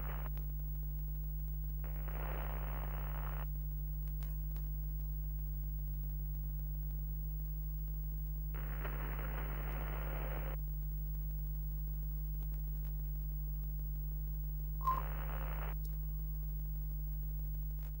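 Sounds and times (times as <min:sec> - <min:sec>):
static hiss bursts: 0:00.0 - 0:00.3, 0:01.8 - 0:03.5, 0:08.6 - 0:10.6, 0:14.8 - 0:15.8
low electrical hum: 0:00.0 - 0:18.0
short beep: 0:14.8 - 0:15.1.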